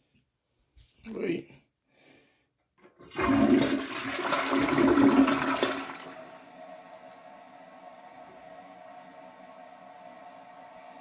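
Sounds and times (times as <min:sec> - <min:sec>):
toilet flushing water rush: 0:02.9 - 0:11.0.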